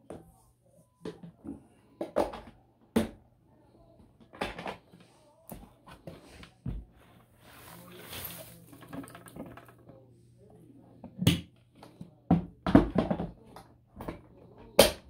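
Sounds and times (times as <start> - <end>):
plastic canister knocking and clicking: 12.3 - 14.2.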